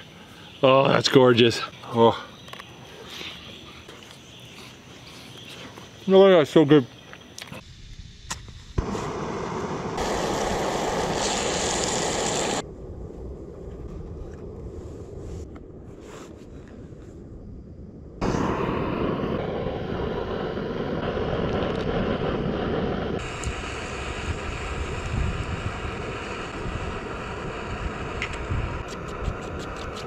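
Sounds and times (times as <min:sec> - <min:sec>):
gas stove burner hissing: 0:07.9 - 0:12.6, 0:18.2 - 0:30.0.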